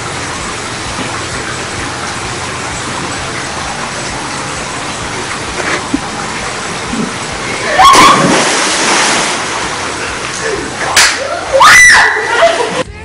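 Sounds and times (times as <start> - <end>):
running water rushing: 0.0 - 12.9
body splashing into pool: 5.2 - 12.8
loud rising scream: 7.6 - 9.2, 11.3 - 12.8.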